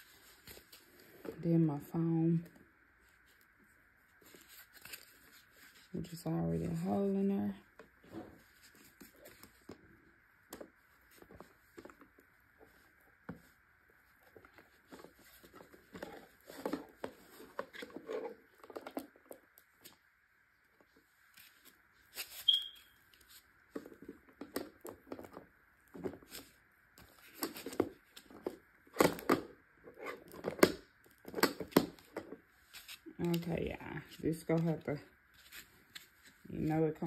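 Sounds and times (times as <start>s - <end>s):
scrapes and small knocks: 10.5s - 20.0s, 23.2s - 33.1s.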